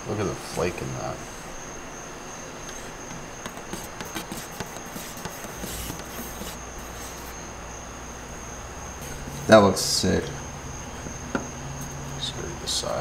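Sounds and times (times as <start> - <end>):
cricket trill: 0.0 - 13.0
stick scraping paint can: 3.4 - 7.3.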